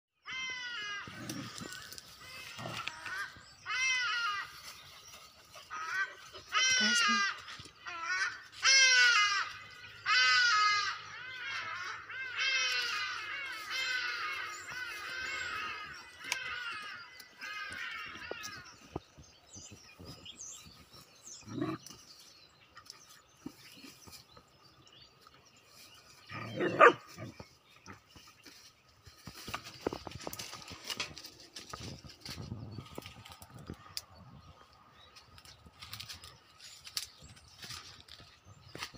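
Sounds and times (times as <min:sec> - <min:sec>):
rustling in grass: 0:12.6 - 0:16.8, 0:25.6 - 0:34.2
puppy barking: 0:26.6 - 0:27.1.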